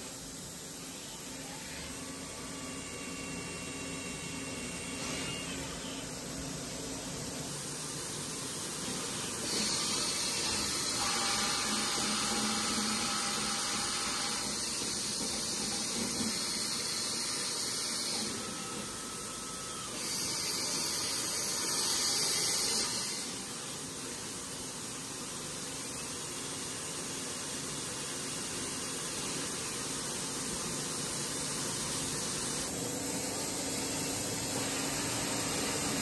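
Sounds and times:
faint machine whine: 0:00.0 - 0:23.8.

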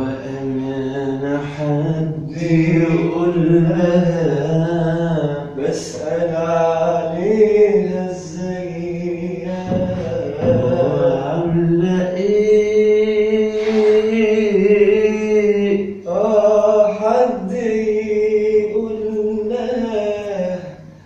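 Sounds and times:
man singing: 0:00.0 - 0:21.0.

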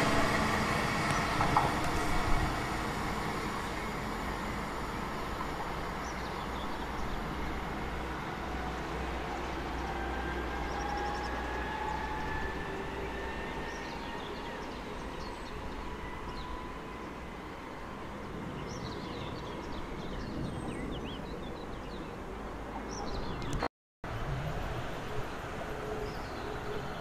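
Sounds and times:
electric train pulling away: 0:00.0 - 0:18.5.

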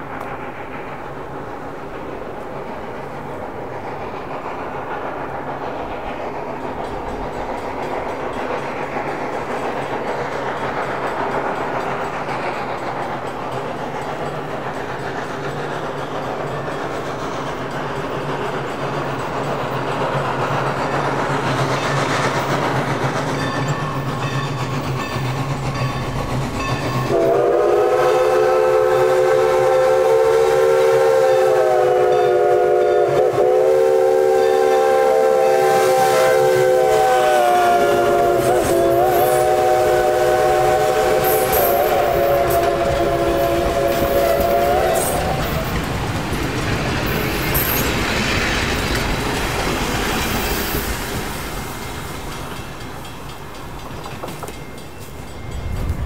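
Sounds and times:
clickety-clack of train wheels: 0:00.0 - 0:56.0
steam locomotive rumbling past: 0:00.0 - 0:56.0
steam whistle: 0:27.1 - 0:45.8.

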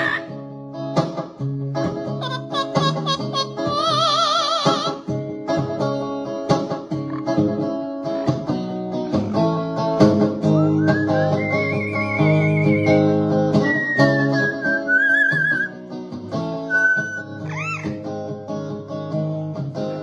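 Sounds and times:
electric guitar chords: 0:00.0 - 0:20.0
parrot singing: 0:02.2 - 0:04.9, 0:10.6 - 0:13.0, 0:13.6 - 0:15.8, 0:16.7 - 0:18.0.

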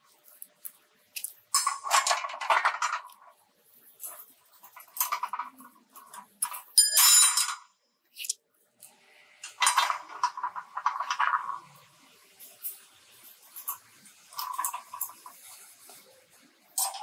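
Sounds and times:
wire clinking against steel bars: 0:01.2 - 0:03.3, 0:04.0 - 0:07.7, 0:16.8 - 0:17.0.

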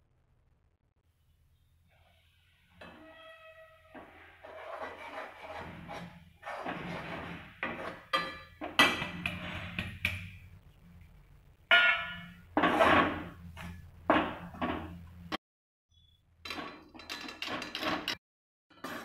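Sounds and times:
spatula scraping metal pan: 0:04.0 - 0:08.2.

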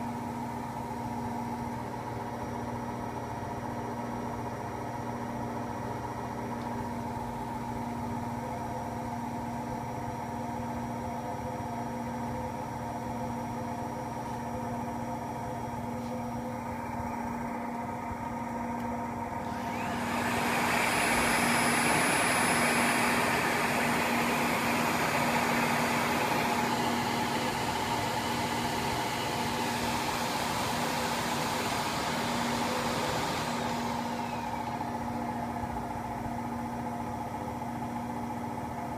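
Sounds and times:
washing machine spin hum: 0:00.0 - 0:38.9
vacuum cleaner rushing and whining: 0:19.3 - 0:36.2.

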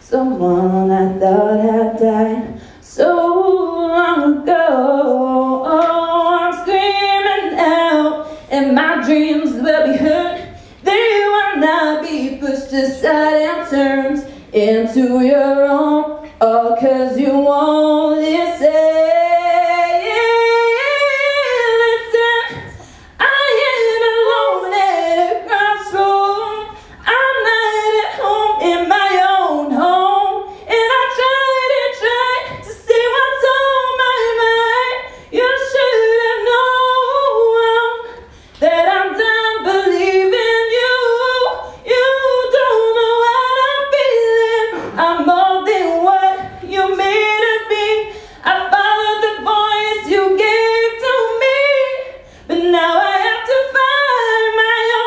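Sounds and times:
woman singing into a microphone: 0:00.0 - 0:55.0
woman breathing: 0:02.5 - 0:02.8, 0:22.7 - 0:23.2, 0:48.1 - 0:48.4.

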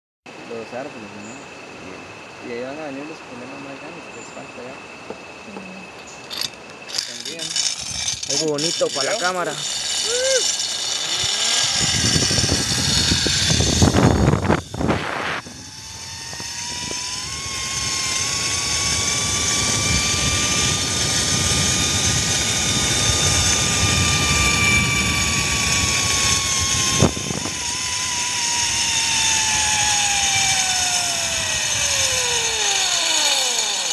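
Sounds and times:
trolley pulleys whining on cable: 0:05.5 - 0:33.9
wind rushing over microphone: 0:11.1 - 0:32.8.

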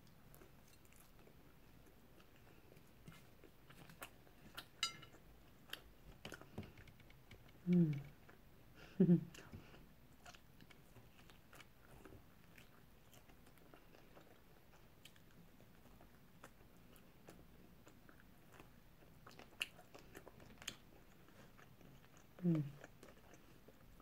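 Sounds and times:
person chewing food: 0:00.0 - 0:08.5, 0:09.3 - 0:24.0
mouth clicks and crunches: 0:10.2 - 0:24.0.

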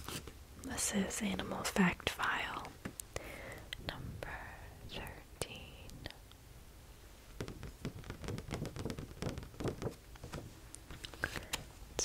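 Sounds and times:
small taps and scratches: 0:07.4 - 0:11.6
paper card rustling: 0:07.4 - 0:11.7.

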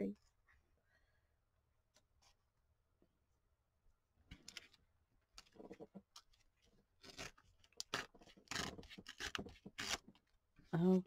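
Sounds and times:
paper rustling and scraping: 0:05.4 - 0:10.3.

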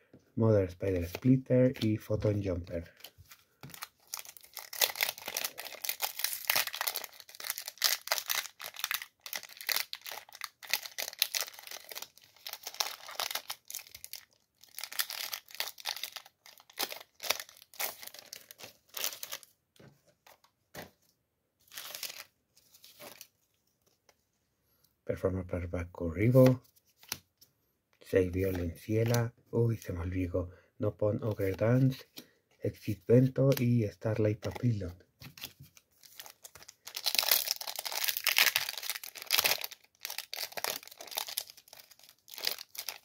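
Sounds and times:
cards rustling: 0:00.8 - 0:24.2, 0:26.2 - 0:27.3, 0:32.9 - 0:43.0
foil wrapper crinkling and tearing: 0:02.9 - 0:19.5, 0:21.6 - 0:23.3, 0:35.4 - 0:43.0.

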